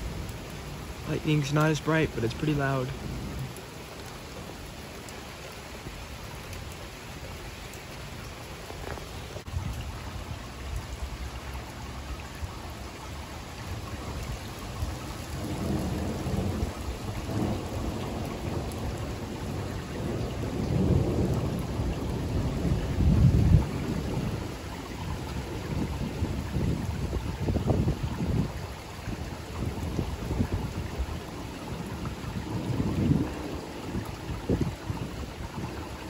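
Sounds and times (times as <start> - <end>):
steady rain falling: 0.0 - 36.0
low rumble of thunder: 13.8 - 36.0.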